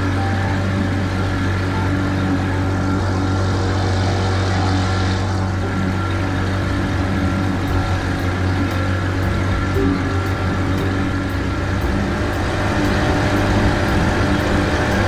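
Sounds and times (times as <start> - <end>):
boat motor running: 0.0 - 15.0
water rushing along hull: 0.0 - 15.0.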